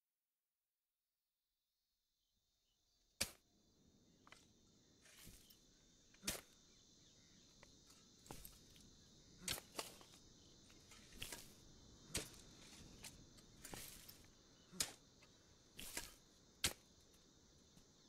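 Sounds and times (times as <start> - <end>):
crickets chirring: 2.7 - 18.0
shovel digging stony earth: 3.2 - 3.4, 4.2 - 6.7, 7.6 - 18.0.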